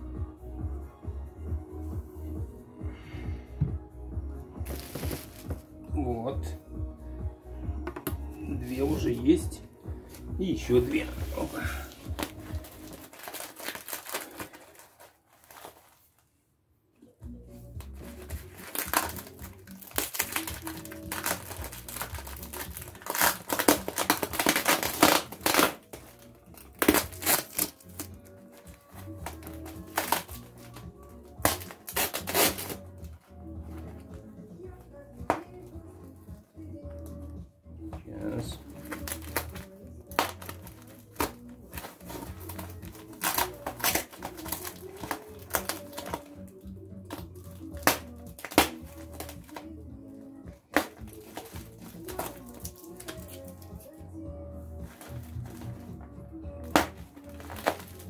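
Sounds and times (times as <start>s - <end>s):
background music: 0.0s - 58.0s
plastic wrap crinkling: 4.6s - 5.6s, 10.2s - 16.3s, 17.8s - 30.8s, 31.4s - 32.8s, 38.6s - 46.4s, 47.1s - 49.7s, 50.7s - 54.0s, 56.6s - 58.0s.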